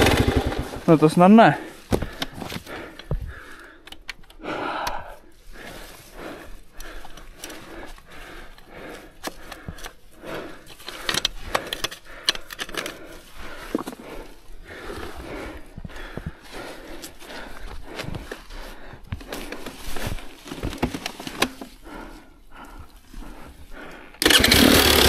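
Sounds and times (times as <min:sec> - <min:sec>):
motorbike dragged through dirt: 0:00.0 - 0:01.8, 0:24.2 - 0:25.0.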